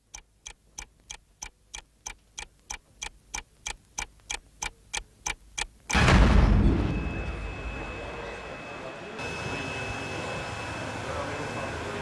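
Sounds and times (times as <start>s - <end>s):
clock ticking: 0.0s - 6.0s
sudden loud noise: 5.9s - 7.9s.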